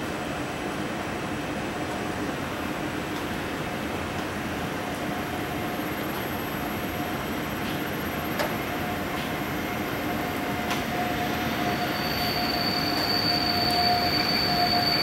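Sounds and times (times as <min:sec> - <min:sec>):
train running: 0:00.5 - 0:15.0
high wheel squeal: 0:10.1 - 0:15.0.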